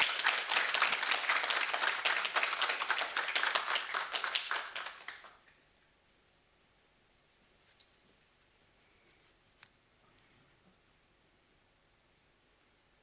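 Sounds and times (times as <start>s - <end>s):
audience applause: 0.0s - 5.4s.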